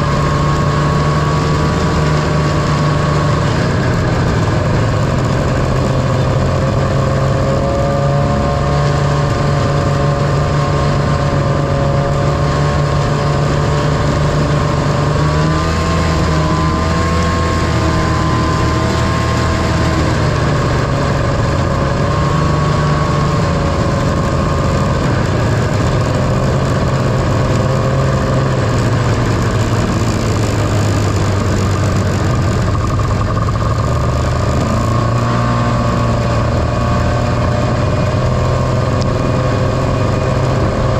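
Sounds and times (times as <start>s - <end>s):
snowmobile engine running: 0.0s - 40.9s
steady noisy rush: 0.0s - 40.9s.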